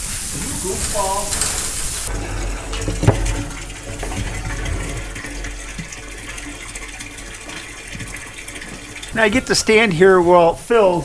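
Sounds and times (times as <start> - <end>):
hose water splashing into drum: 0.0 - 11.0.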